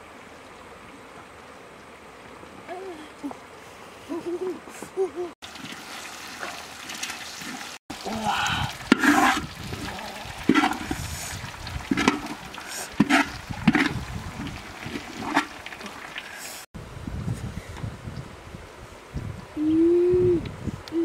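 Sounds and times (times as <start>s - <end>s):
wooden spatula scraping a metal wok: 8.9s - 9.4s.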